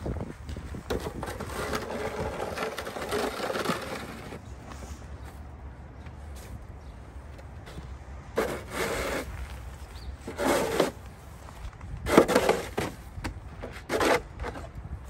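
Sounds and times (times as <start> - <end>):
snow shovel scraping pavers: 0.8 - 4.5, 8.3 - 14.8.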